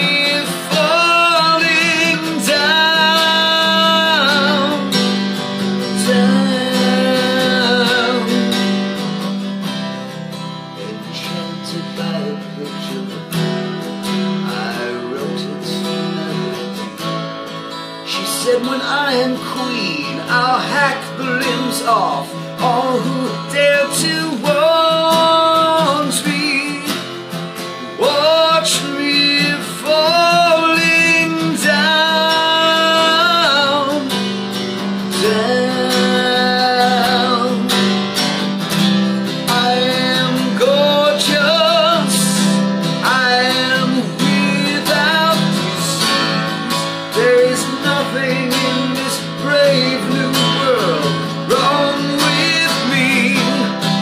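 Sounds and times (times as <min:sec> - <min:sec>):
man singing: 0:00.0 - 0:54.0
strummed acoustic guitar: 0:00.0 - 0:54.0.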